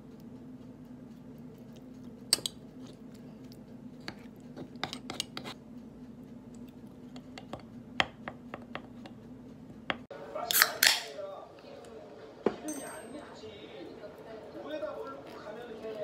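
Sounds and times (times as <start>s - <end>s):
steady low hum: 0.0s - 10.5s
spoons scraping a bowl: 4.0s - 5.6s.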